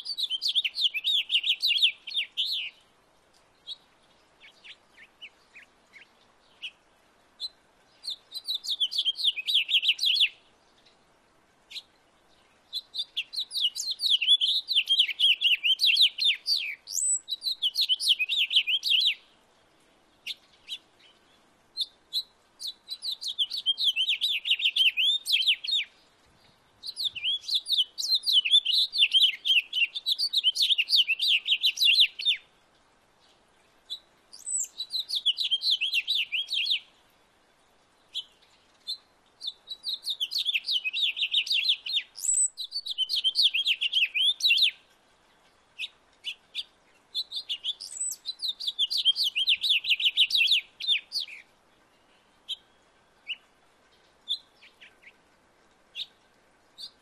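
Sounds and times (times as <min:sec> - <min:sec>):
bird chirps: 0:00.0 - 0:02.8, 0:07.4 - 0:10.9, 0:11.7 - 0:19.2, 0:20.2 - 0:32.4, 0:33.9 - 0:36.9, 0:38.1 - 0:44.8, 0:45.8 - 0:55.2.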